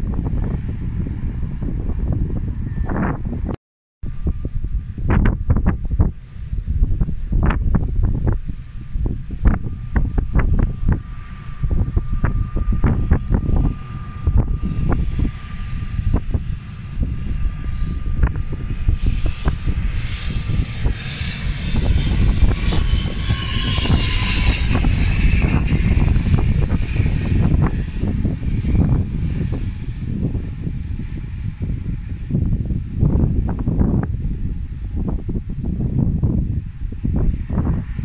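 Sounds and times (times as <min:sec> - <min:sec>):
airliner passing by: 0:00.0 - 0:38.0.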